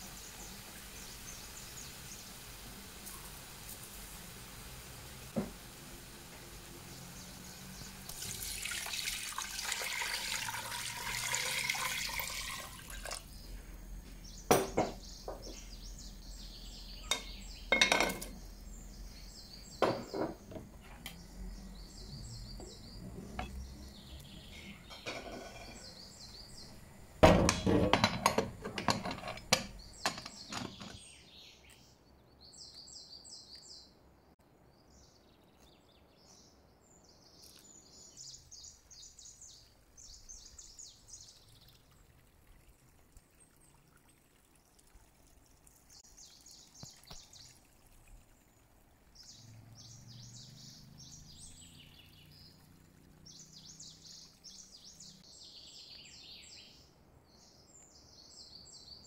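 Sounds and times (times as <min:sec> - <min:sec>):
water poured into a pan: 0:07.6 - 0:13.3, 0:40.6 - 0:49.7
pots and utensils clattering: 0:14.5 - 0:15.6, 0:17.0 - 0:18.4, 0:19.8 - 0:21.0, 0:24.5 - 0:26.0, 0:27.2 - 0:31.0.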